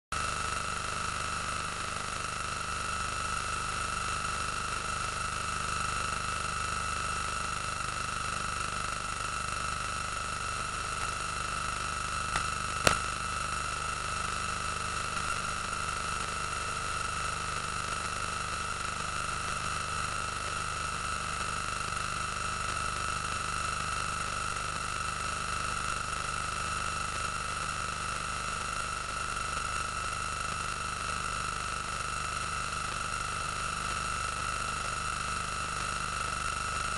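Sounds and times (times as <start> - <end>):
steady hiss: 12.3 - 13.2
sharp click: 12.4 - 13.1.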